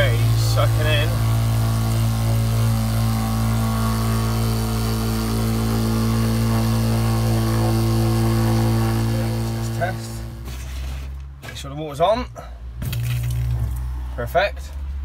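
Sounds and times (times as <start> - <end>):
water pump humming: 0.0 - 10.6.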